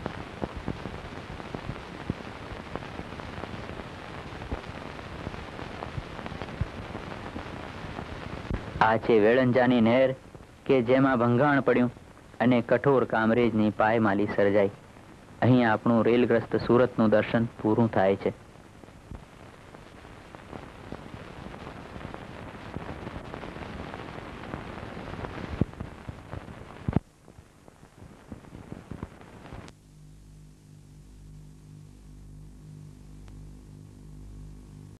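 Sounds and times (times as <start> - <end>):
old film crackle with pops: 0.0 - 30.3, 32.9 - 34.8
low electrical hum: 0.0 - 35.0.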